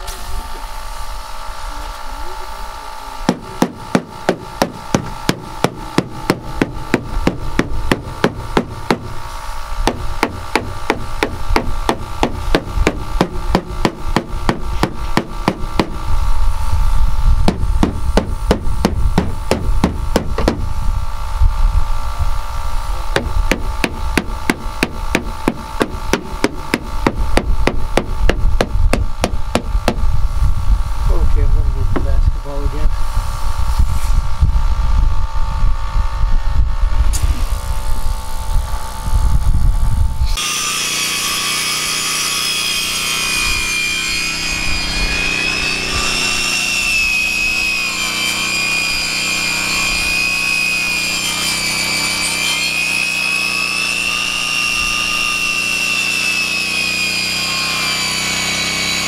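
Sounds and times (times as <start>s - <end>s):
steady mechanical hum: 0.0s - 59.0s
mallet hammering on steel panel: 3.3s - 9.2s, 9.8s - 16.0s, 17.4s - 20.7s, 23.1s - 30.0s.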